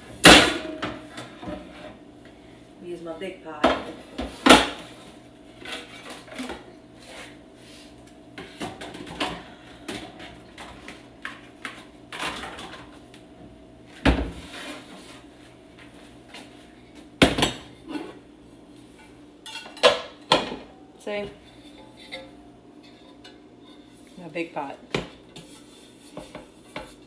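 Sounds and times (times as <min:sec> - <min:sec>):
metal pots and pans clanking: 0:21.4 - 0:23.4.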